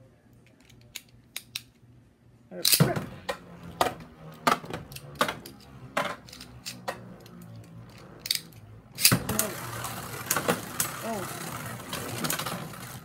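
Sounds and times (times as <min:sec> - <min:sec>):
spinning top whirring: 0:02.7 - 0:13.0.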